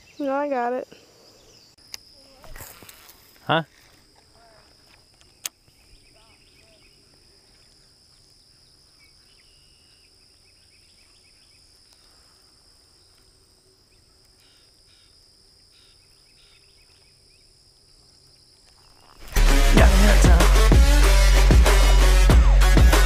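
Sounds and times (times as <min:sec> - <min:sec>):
high-pitched insect buzz: 0:00.0 - 0:05.4
faint bird chirps: 0:00.0 - 0:17.6.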